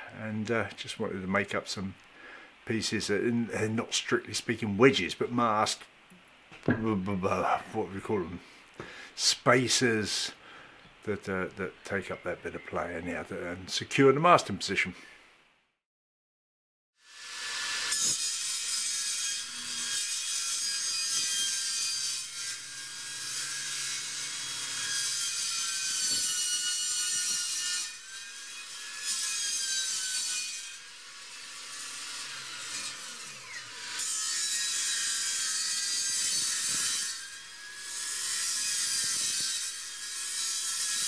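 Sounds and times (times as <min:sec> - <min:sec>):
table saw cutting plywood: 0:17.0 - 0:41.0.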